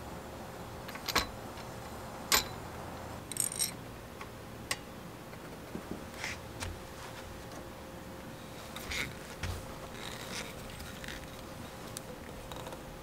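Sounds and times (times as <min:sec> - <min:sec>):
metal clicks and clinks: 0:03.3 - 0:03.8.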